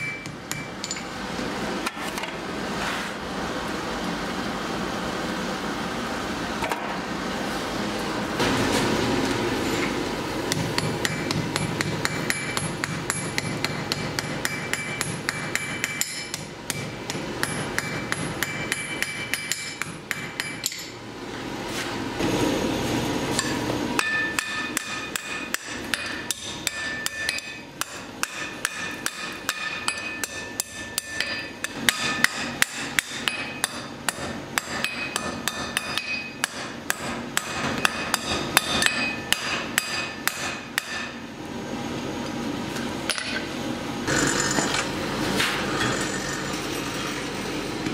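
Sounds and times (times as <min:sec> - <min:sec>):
hammer striking anvil: 0:00.0 - 0:01.1, 0:10.5 - 0:21.0, 0:23.3 - 0:41.2, 0:43.1 - 0:43.5.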